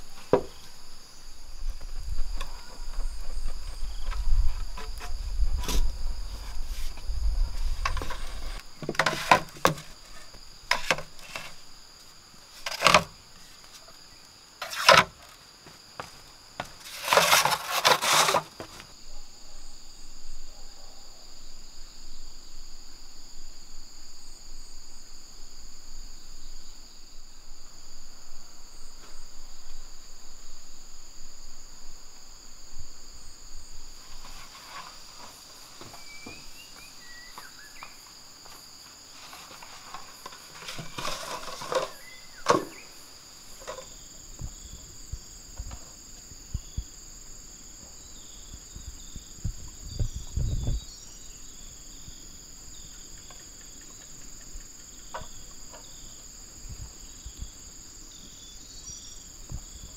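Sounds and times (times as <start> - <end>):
bamboo rustling: 0.0 - 19.0, 33.6 - 44.2
insects buzzing: 0.0 - 59.9.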